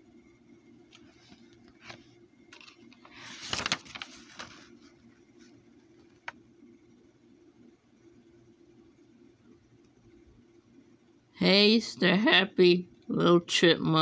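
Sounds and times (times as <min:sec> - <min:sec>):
paper page rustling: 0:00.9 - 0:06.3.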